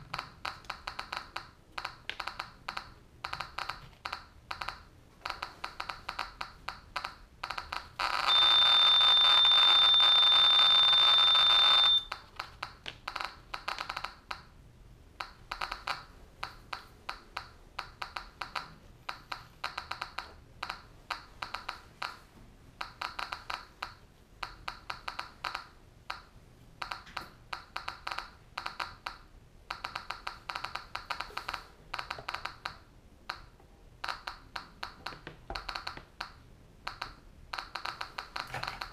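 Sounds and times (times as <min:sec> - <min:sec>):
geiger counter clicking: 0:00.0 - 0:14.5, 0:15.2 - 0:38.9
steady high beep: 0:08.0 - 0:12.1.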